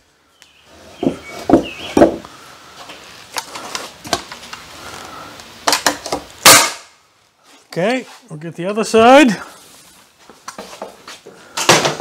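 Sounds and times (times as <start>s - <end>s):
boards knocking: 1.0s - 2.2s
nail gun shots with air hiss: 6.4s - 6.9s.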